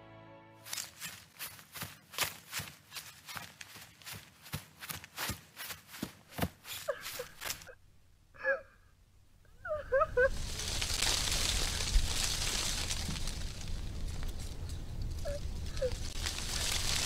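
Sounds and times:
running footsteps on dirt: 0.7 - 7.7.

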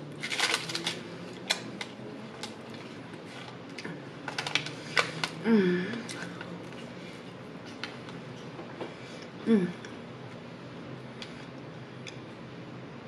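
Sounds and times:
person humming briefly: 5.4 - 6.1, 9.4 - 9.8.

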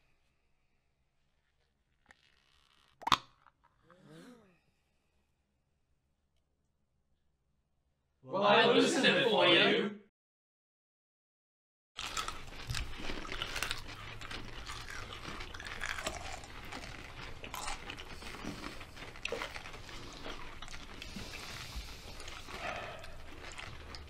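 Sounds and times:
people chewing crunchy pickles: 12.0 - 24.0.

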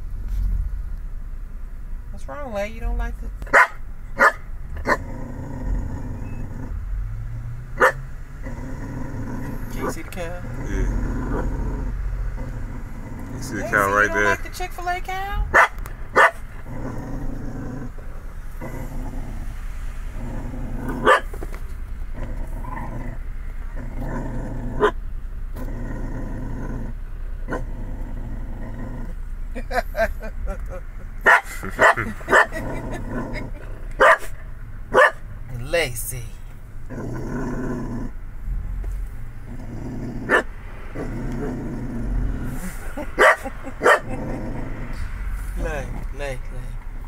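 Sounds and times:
dog barking: 3.5 - 5.0, 7.8 - 8.0, 15.5 - 16.4, 21.0 - 21.3, 31.2 - 32.6, 34.0 - 35.2, 40.3 - 40.5, 43.2 - 44.2
dog growling: 4.8 - 6.8, 7.8 - 14.4, 16.2 - 21.2, 22.2 - 25.0, 25.6 - 29.2, 31.5 - 34.0, 36.9 - 38.2, 39.4 - 45.1.

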